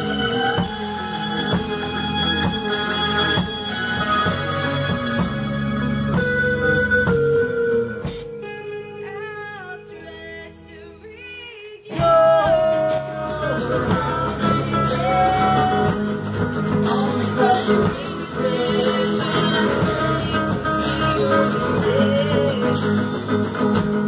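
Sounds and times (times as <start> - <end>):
electric guitars and bass: 0.0 - 24.0
woman singing: 8.9 - 23.7.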